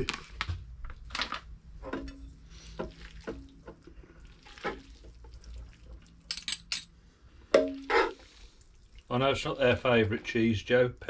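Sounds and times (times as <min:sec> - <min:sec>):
spaghetti stirring in pan: 0:01.7 - 0:06.4, 0:07.4 - 0:10.6
utensils clinking on pan: 0:06.3 - 0:06.9.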